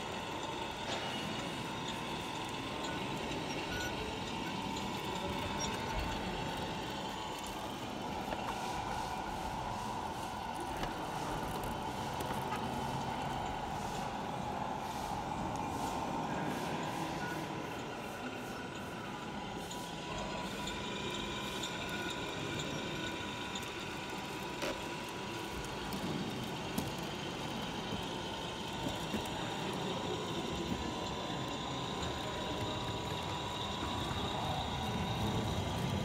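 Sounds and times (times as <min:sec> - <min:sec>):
toy trucks motor whine: 0:00.0 - 0:14.6, 0:17.1 - 0:36.0.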